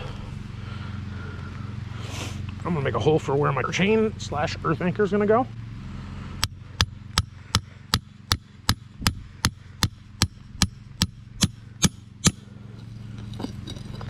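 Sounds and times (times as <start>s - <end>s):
hatchet striking metal stake: 6.4s - 12.5s.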